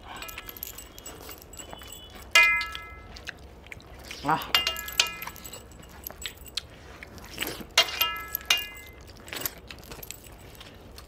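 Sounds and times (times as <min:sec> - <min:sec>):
metallic clinks on steel plate: 0:00.0 - 0:03.1, 0:04.4 - 0:06.6, 0:07.8 - 0:10.4
chewing and mouth sounds: 0:00.0 - 0:08.0, 0:08.8 - 0:11.0.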